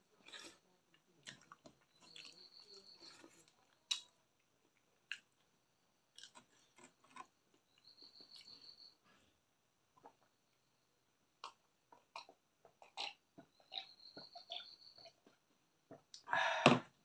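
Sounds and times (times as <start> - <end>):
chewing and mouth clicks: 0.2 - 5.5, 6.1 - 8.6, 11.4 - 15.4.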